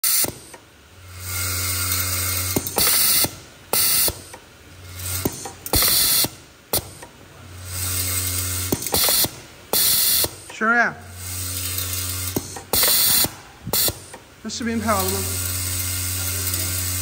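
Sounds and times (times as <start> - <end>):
pneumatic slide clicks: 0.0 - 0.6, 2.6 - 4.4, 5.2 - 7.1, 8.7 - 10.4, 11.8 - 14.2
bowl feeder humming buzz: 11.0 - 17.0
compressed air hisses: 12.4 - 14.1.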